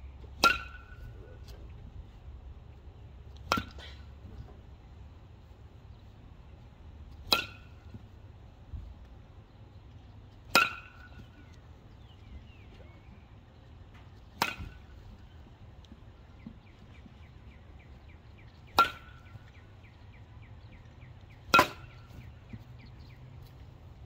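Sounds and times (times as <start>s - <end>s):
baseball cracking off a bat: 3.4s - 4.0s, 14.3s - 15.0s.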